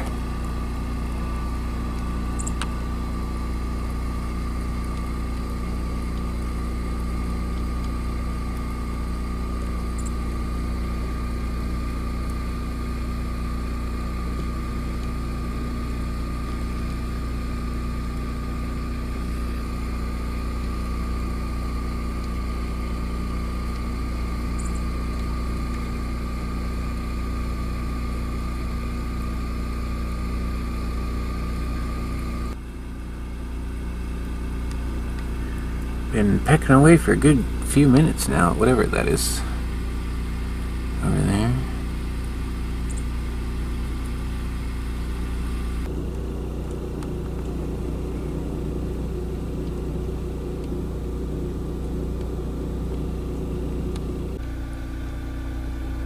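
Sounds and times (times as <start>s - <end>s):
motor humming with whine: 0.0s - 56.0s
faint high chirps: 9.9s - 10.3s, 24.5s - 25.0s, 42.8s - 43.2s.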